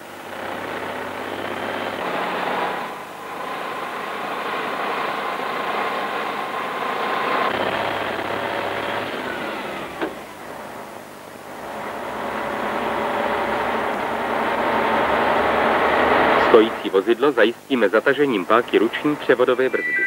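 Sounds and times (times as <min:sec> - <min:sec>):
thin whine: 0:18.8 - 0:20.0.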